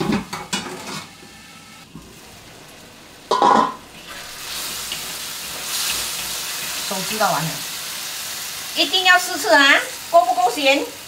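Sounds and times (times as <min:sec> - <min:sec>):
food sizzling in a wok: 0:00.0 - 0:11.0
spatula stirring in a wok: 0:03.3 - 0:08.8.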